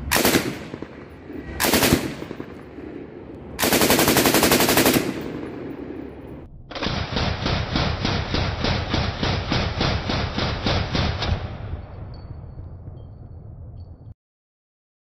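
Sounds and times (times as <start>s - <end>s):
machine gun bursts: 1.6s - 2.2s, 3.6s - 5.3s.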